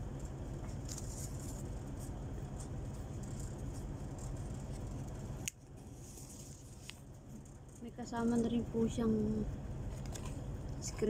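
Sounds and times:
steady low hum: 0.0 - 11.0
paper and cardboard rustling: 5.9 - 7.6.

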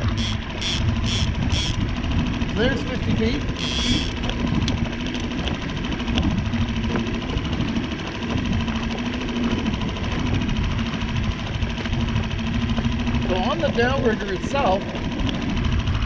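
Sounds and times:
outboard motor humming: 0.0 - 16.0.

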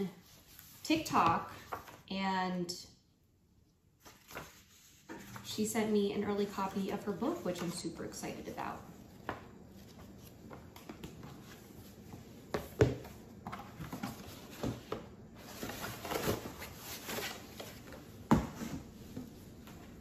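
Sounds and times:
paper and cardboard rustling: 4.0 - 7.9, 9.0 - 19.9.

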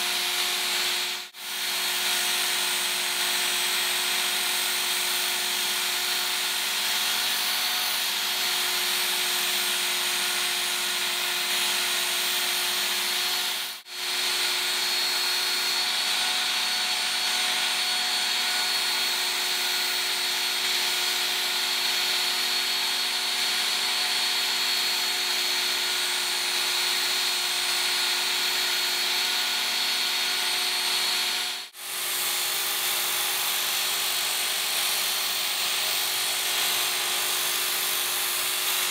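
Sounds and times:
electric knife sharpener motor whine: 0.0 - 38.9
belt grinding steel blade: 31.6 - 38.9.

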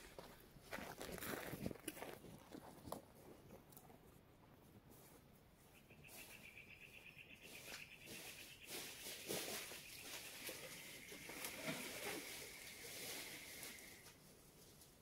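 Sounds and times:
rustling and crackling: 7.4 - 15.0.

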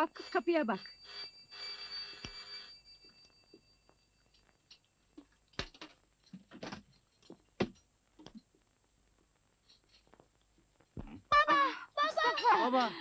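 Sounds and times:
doorbell ringing: 0.8 - 4.7.

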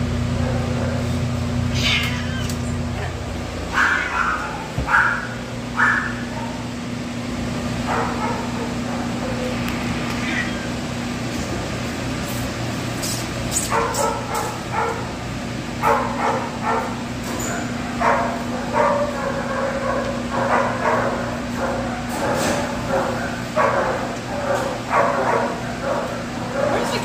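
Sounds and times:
steady low hum: 0.0 - 27.0
dog barking: 0.4 - 1.2, 3.7 - 6.7, 7.8 - 9.6, 13.6 - 15.2, 15.8 - 27.0.

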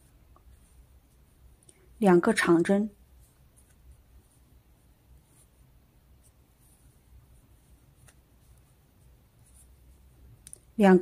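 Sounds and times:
crochet yarn rustling: 0.0 - 10.9.

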